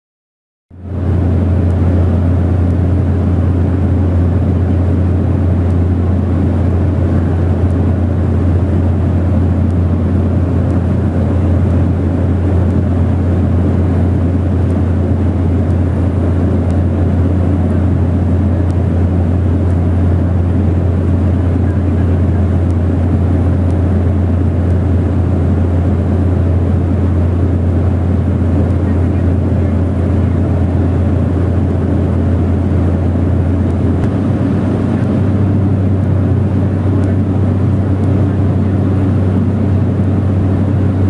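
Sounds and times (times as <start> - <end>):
propeller plane engine drone: 0.7 - 41.0
rushing air: 30.0 - 38.0.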